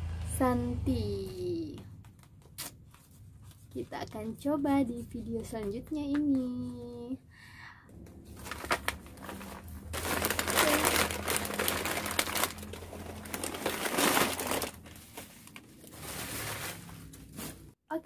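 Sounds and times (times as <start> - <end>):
plastic packets crinkling: 8.2 - 17.7.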